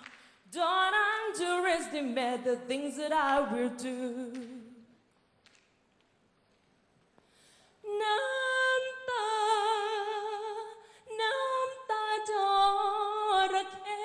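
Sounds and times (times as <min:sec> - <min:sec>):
woman singing unaccompanied: 0:00.0 - 0:04.9, 0:07.8 - 0:14.0.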